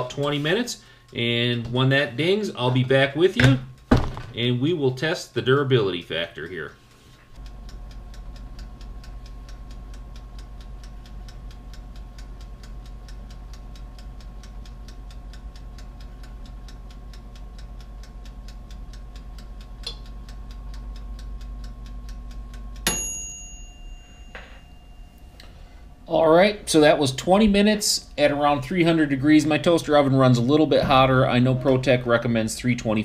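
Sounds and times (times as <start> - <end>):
wind-up timer ticking: 0.0 - 24.0, 25.4 - 33.0
toaster oven humming: 0.0 - 33.0
timer bell ringing: 22.8 - 25.8.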